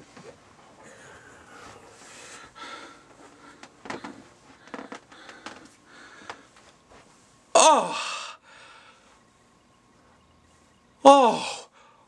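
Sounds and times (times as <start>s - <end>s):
breathing: 0.8s - 6.6s, 8.0s - 9.2s, 11.7s - 12.0s.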